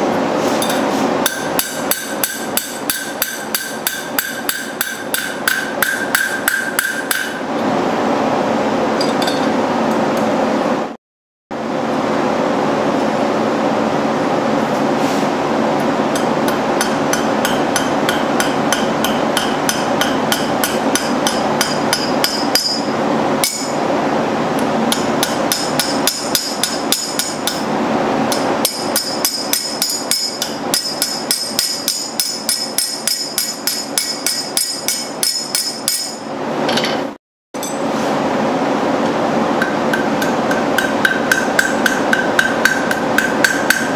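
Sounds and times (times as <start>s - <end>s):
steady hum: 0.0s - 43.9s
hammer ringing on anvil: 0.6s - 7.4s, 16.1s - 23.8s, 24.9s - 27.6s, 28.3s - 36.2s, 39.6s - 43.9s.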